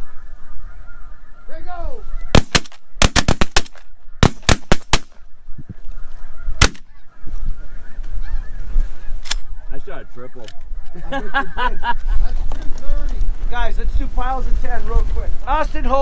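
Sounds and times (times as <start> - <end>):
geese honking: 0.0 - 12.1
wind rumbling on microphone: 0.0 - 16.0
shotgun fire: 2.4 - 5.2, 6.6 - 6.8.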